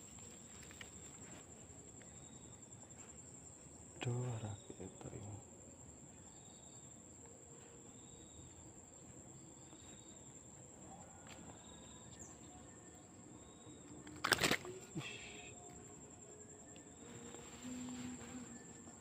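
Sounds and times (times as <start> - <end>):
insects trilling: 0.0 - 19.0
faint chirps: 6.1 - 19.0.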